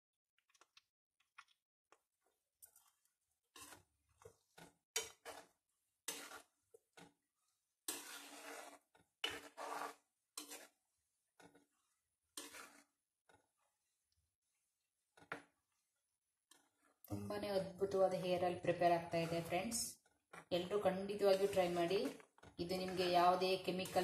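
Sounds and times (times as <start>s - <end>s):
spatula scraping metal pan: 3.5s - 15.9s, 17.7s - 24.0s.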